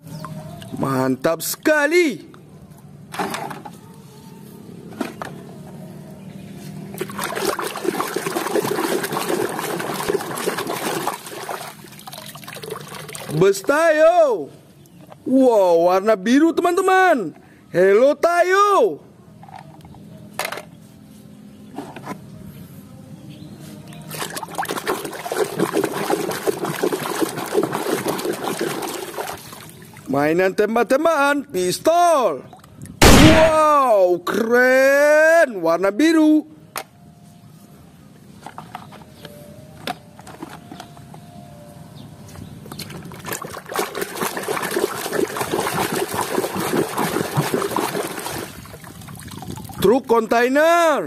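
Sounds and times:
hand splashing in muddy water: 0:07.0 - 0:13.4, 0:24.1 - 0:30.1, 0:43.2 - 0:49.8.

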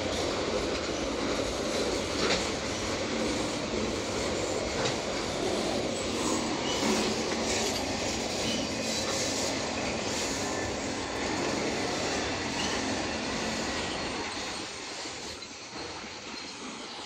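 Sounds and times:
wheel and rail rumble: 0:00.0 - 0:17.0
high wheel squeals: 0:04.4 - 0:17.0.

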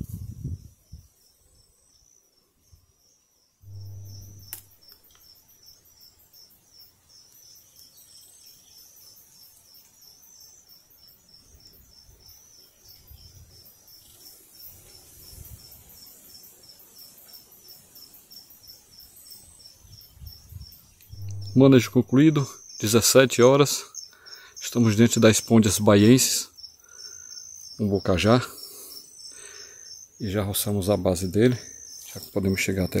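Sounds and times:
faint outdoor ambience: 0:00.0 - 0:33.0
insect chirping: 0:00.0 - 0:33.0
low hum ending in click: 0:03.7 - 0:04.7, 0:21.0 - 0:22.1.

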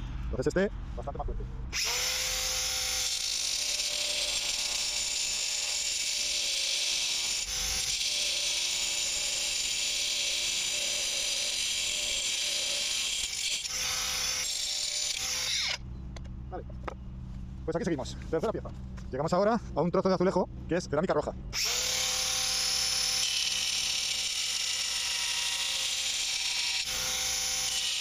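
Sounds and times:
angle grinder cutting concrete: 0:01.8 - 0:15.8, 0:21.6 - 0:28.0.

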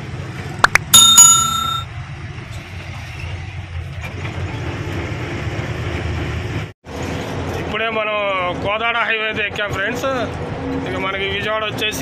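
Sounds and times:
lorry engine and road noise: 0:00.0 - 0:12.0
loud bell-like ring: 0:00.7 - 0:01.9.

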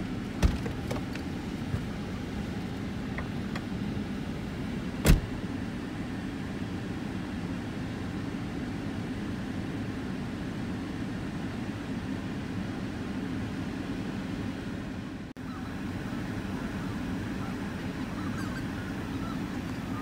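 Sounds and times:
car engine rumble from inside: 0:00.0 - 0:20.0
geese honking: 0:15.4 - 0:20.0.

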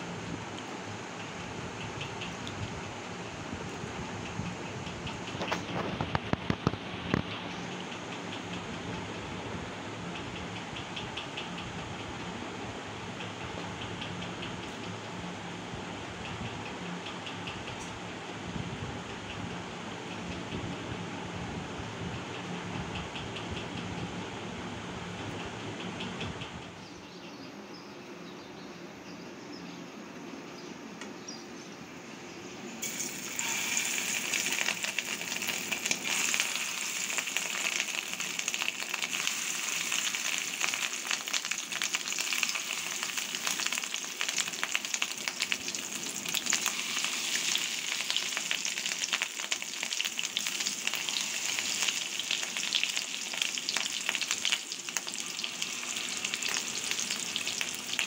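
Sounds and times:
food sizzling in hot oil: 0:32.8 - 0:58.0.

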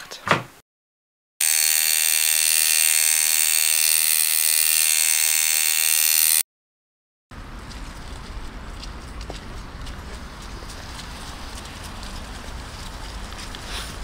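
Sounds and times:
tattoo machine buzzing: 0:01.4 - 0:06.5.

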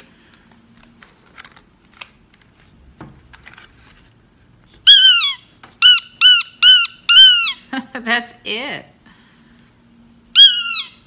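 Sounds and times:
toy squeaker squeak: 0:04.9 - 0:07.7, 0:10.4 - 0:11.0.

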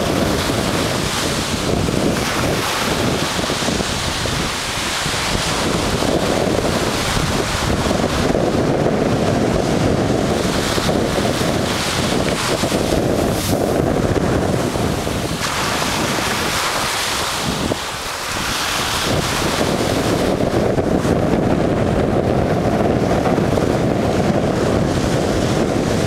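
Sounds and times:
waves washing up sand: 0:00.0 - 0:26.0
wind buffeting microphone: 0:00.0 - 0:26.0.

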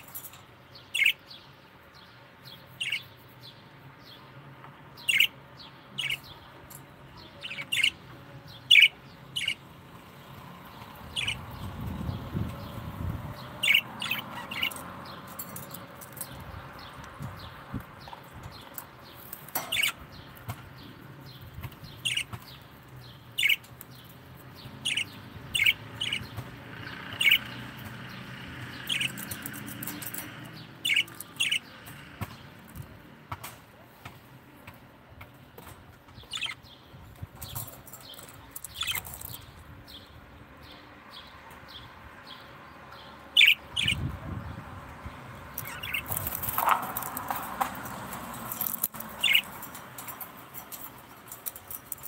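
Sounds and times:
lovebirds chirping: 0:00.0 - 0:52.0.

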